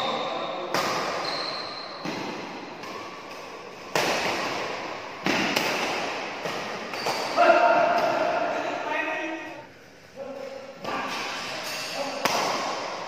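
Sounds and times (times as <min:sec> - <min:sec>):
rackets smacking shuttlecock: 0:02.0 - 0:08.3, 0:10.8 - 0:13.0.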